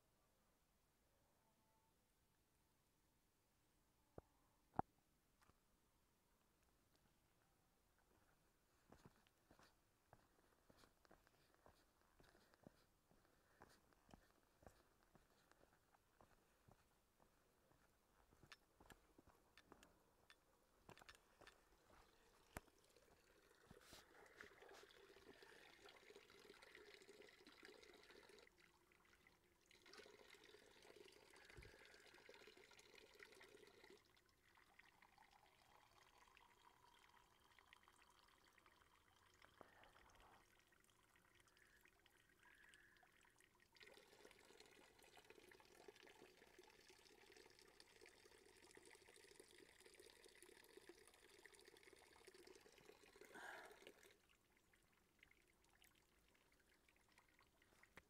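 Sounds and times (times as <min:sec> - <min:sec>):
water trickling into plastic cup: 0:17.7 - 0:58.0.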